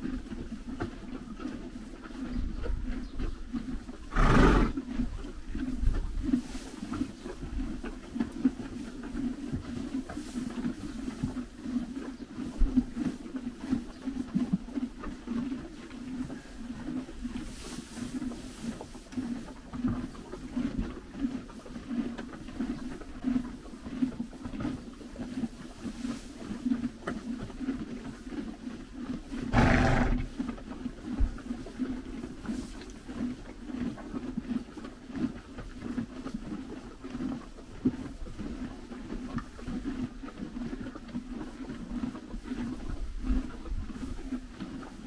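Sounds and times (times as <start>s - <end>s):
ponies chewing dry hay: 0.0s - 45.0s.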